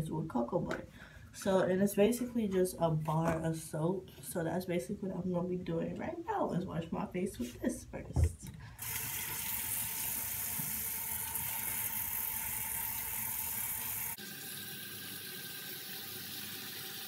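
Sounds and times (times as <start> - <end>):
tap running into sink: 8.8 - 14.1.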